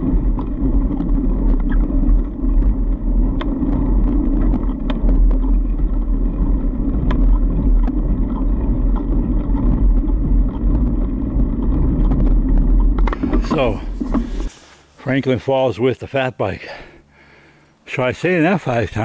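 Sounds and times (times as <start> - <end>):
tyre and wind rumble: 0.0 - 14.6.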